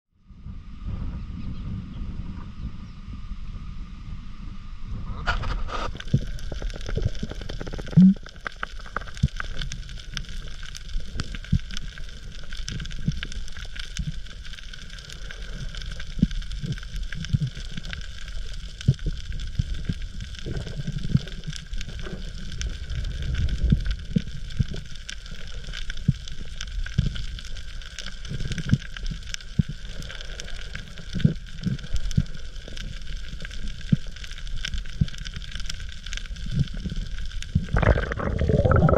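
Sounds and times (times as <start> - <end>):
underwater low rumble: 0.1 - 38.9
reef crackling and clicking: 5.2 - 38.9.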